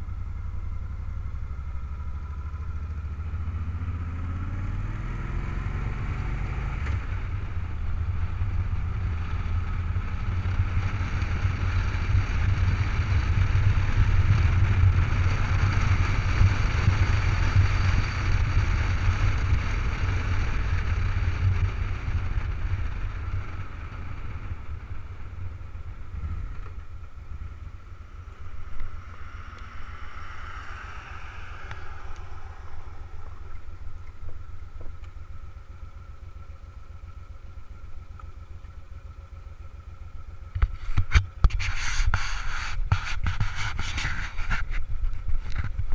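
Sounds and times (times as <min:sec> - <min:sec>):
motorcycle engine rumbling: 0:00.0 - 0:45.9
hand rubbing camera: 0:40.7 - 0:45.8.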